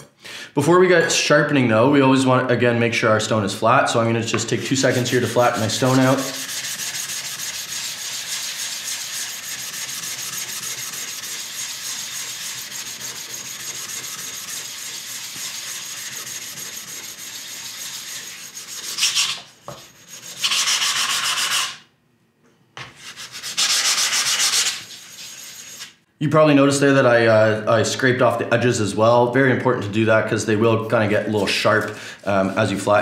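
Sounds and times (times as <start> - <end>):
stone rubbing abrasively: 4.7 - 21.8, 23.0 - 26.0.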